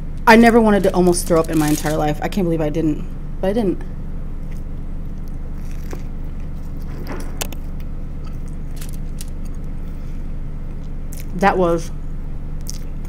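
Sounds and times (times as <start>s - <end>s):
steady low hum: 0.0s - 13.0s
person chewing food: 4.4s - 6.9s, 7.6s - 9.7s, 12.6s - 13.0s
biting into food: 5.2s - 9.6s.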